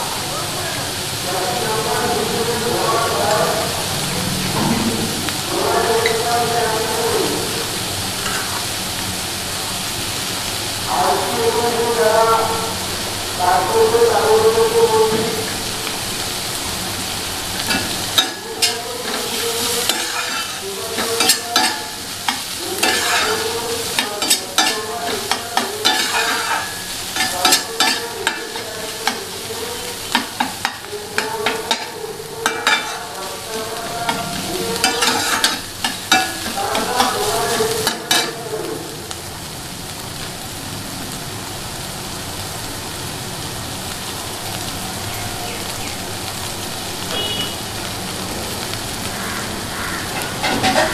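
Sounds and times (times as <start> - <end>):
onions sizzling in hot oil: 0.0 - 50.9
spatula scraping frying pan: 17.6 - 38.4, 49.9 - 50.9.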